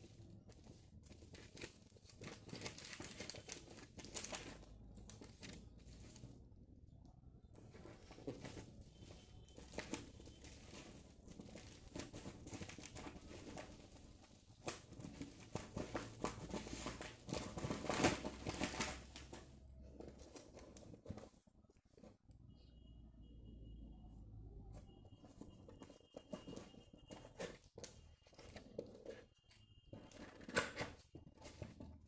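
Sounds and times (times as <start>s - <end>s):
bubble wrap crinkling and crackling: 0.1s - 6.4s, 8.0s - 21.1s.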